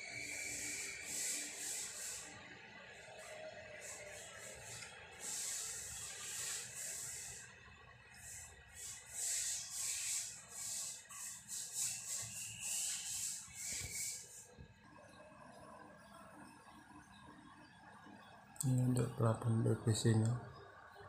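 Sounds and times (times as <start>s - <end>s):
paintbrush swishing on wall: 0.3s - 2.4s, 3.0s - 7.5s, 8.2s - 14.6s.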